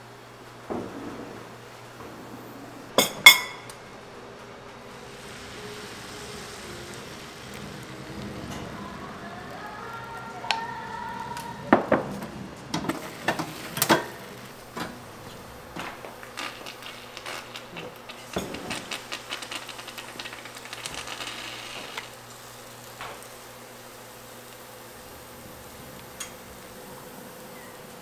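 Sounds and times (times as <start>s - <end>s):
food sizzling: 0.0s - 28.0s
kitchen utensils clinking: 3.0s - 3.9s, 12.7s - 19.1s.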